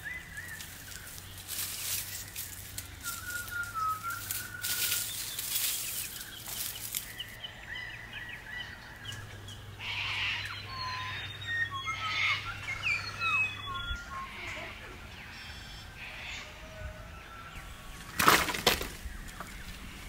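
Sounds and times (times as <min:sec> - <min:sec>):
rustling crackle: 0:00.0 - 0:07.4
birds chirping and whistling: 0:00.0 - 0:20.0.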